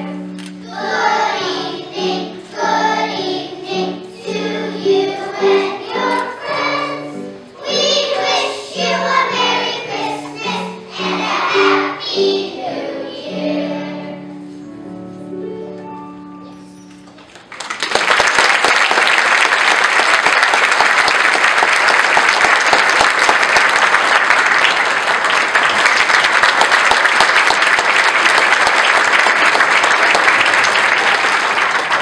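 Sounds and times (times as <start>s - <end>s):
children's song with piano: 0.0s - 17.5s
audience clapping: 17.1s - 32.0s.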